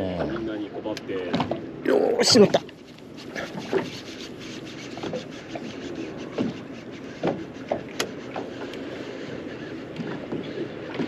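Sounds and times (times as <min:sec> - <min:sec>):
rubbing handling noise: 0:02.8 - 0:09.4.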